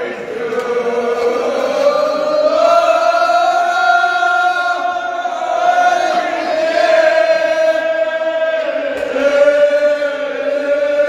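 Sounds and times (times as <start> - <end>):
men chanting in unison: 0.0 - 11.0.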